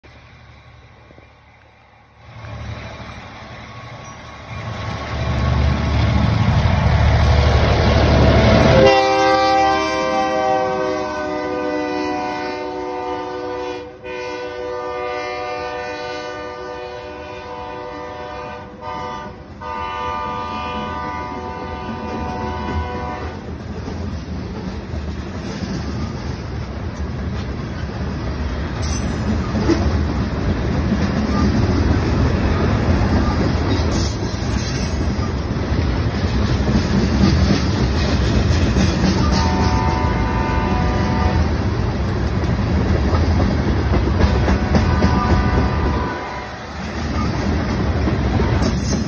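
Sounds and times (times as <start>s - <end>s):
diesel locomotive engine rumble: 0.0s - 49.0s
train horn blowing: 8.0s - 23.5s, 39.1s - 41.7s, 44.3s - 47.3s
train wheels clattering on rails: 20.4s - 49.0s.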